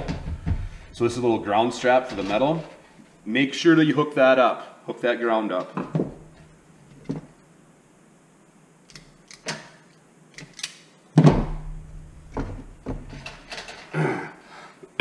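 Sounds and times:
pliers and wires clicking: 8.9s - 10.9s.

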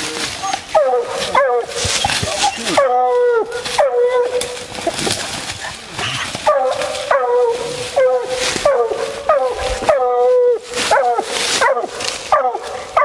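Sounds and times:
dog barking: 0.8s - 1.7s, 6.4s - 10.2s, 10.9s - 13.0s.

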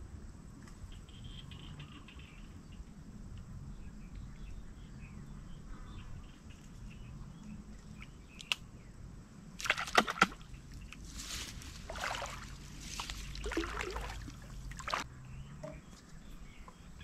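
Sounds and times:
bird chirps: 0.9s - 2.9s
plants rustling: 10.9s - 15.0s.

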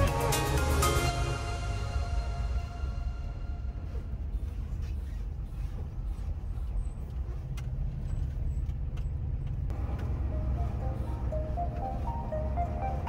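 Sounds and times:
diesel truck engine and tyres rumbling: 0.0s - 13.0s
faint music: 9.7s - 13.0s.

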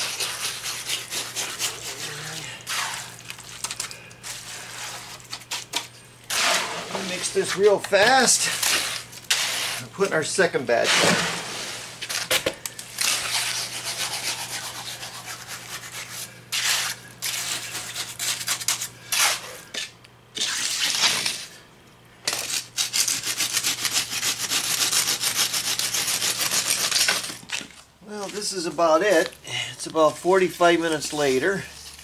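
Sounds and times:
trowel scraping wet concrete: 0.0s - 12.4s, 13.0s - 21.6s.

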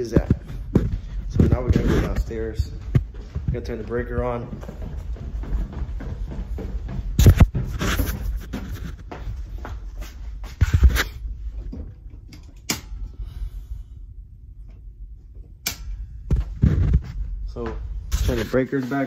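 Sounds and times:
footsteps down stairs: 0.0s - 13.3s, 16.2s - 19.0s
phone rubbing on microphone: 0.2s - 3.0s, 7.2s - 9.2s, 10.5s - 11.2s, 16.3s - 17.3s, 18.1s - 19.0s
sharp click: 15.6s - 16.0s.

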